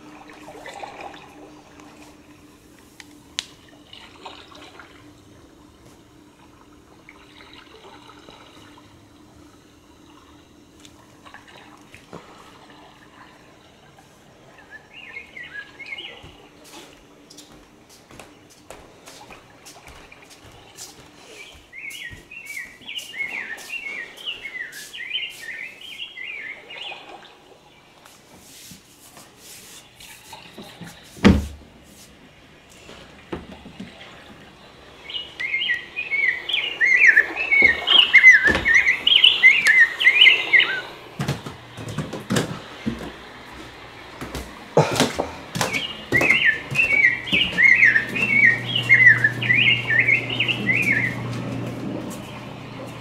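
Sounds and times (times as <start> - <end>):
steady low hum: 0.0 - 53.0
bird chirping: 14.5 - 16.4, 21.3 - 27.1, 35.0 - 41.0, 45.6 - 51.3.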